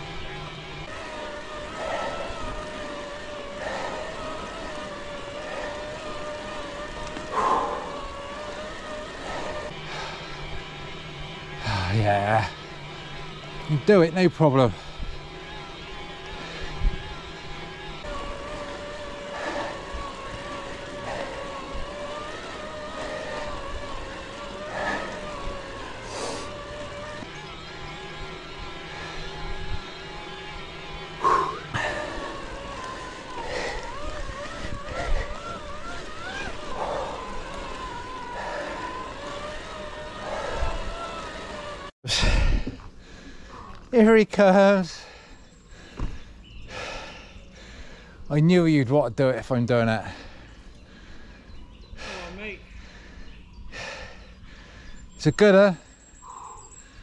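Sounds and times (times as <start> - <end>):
tyre and wind noise: 0.0 - 43.0
electric bike motor whining: 0.0 - 57.0.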